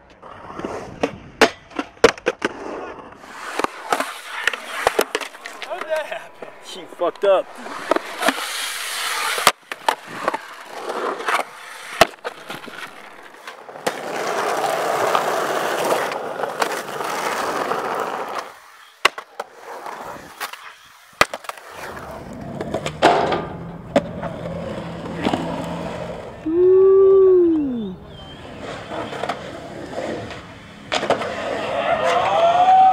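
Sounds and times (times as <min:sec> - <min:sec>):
skateboard wheels rolling on pavement: 0:00.0 - 0:32.9
skateboard pops and landing slaps: 0:00.9 - 0:06.6, 0:07.5 - 0:17.6, 0:18.2 - 0:22.0, 0:30.2 - 0:32.4
metal trucks grinding on curb: 0:03.2 - 0:13.4.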